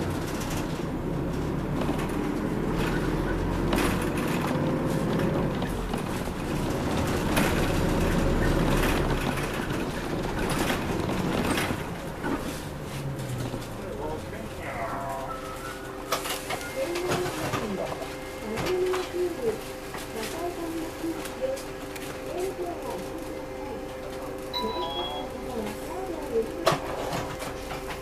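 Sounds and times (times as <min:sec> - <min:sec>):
tyre and road noise: 0:00.0 - 0:16.4
bus engine running: 0:00.0 - 0:26.6.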